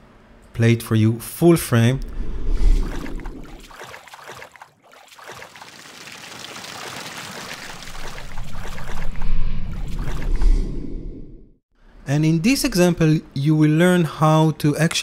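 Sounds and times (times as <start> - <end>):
rushing water: 2.8 - 10.3.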